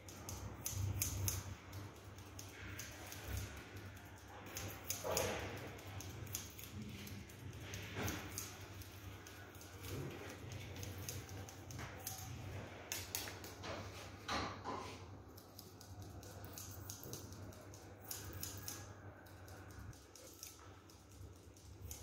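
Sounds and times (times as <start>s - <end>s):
scissors snipping hair: 0.0s - 13.6s, 15.3s - 22.0s.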